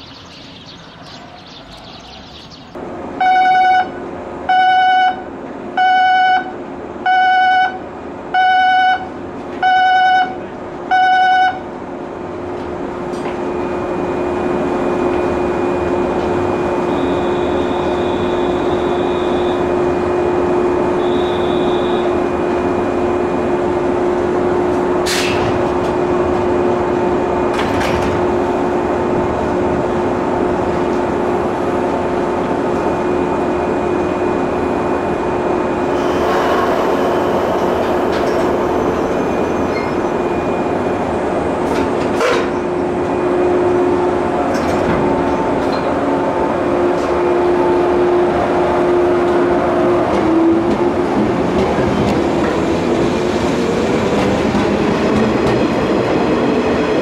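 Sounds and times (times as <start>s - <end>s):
electric train hum: 2.5s - 57.0s
sliding doors clacking shut: 27.5s - 28.4s, 35.9s - 40.1s.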